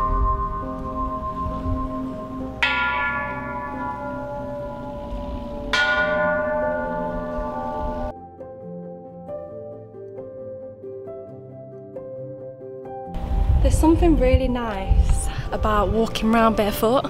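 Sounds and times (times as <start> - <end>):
temple bells ringing: 0.0 - 8.1.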